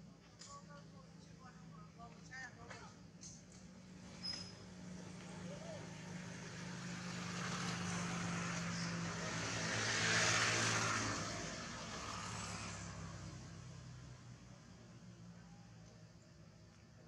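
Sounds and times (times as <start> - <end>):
vehicle engine passing by: 3.9 - 15.8.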